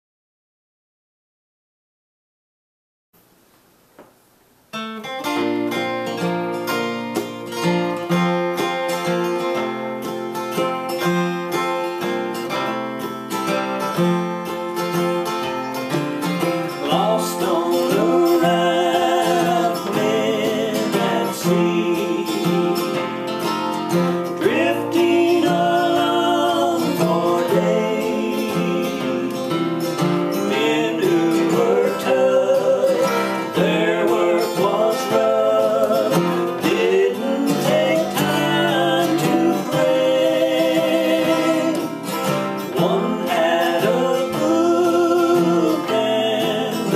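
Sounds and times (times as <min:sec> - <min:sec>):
acoustic guitars strumming: 0:04.0 - 0:46.9
men singing in harmony: 0:16.7 - 0:46.9.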